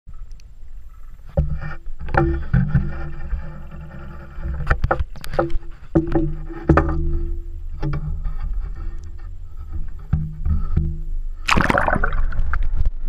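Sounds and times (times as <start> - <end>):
low steady hum: 0.1 - 13.0
water sloshing: 0.7 - 13.0
muffled knocks underwater: 1.2 - 13.0.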